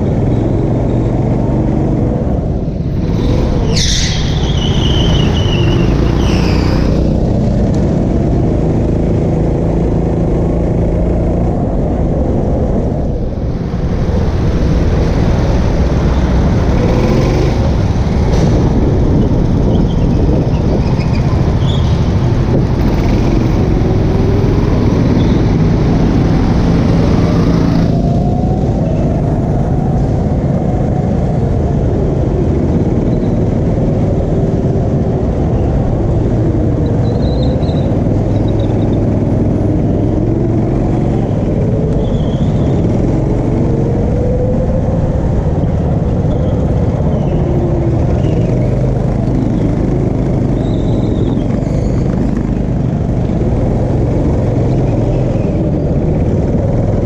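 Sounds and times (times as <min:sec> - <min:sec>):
go-kart engine rumble: 0:00.0 - 0:57.0
tyres squealing: 0:03.0 - 0:07.0.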